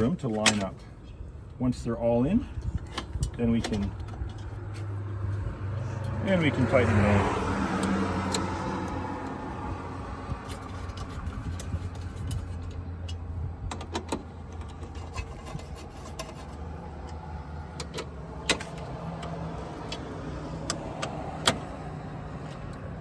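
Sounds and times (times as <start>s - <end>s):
steady low rumble: 8.6s - 15.8s.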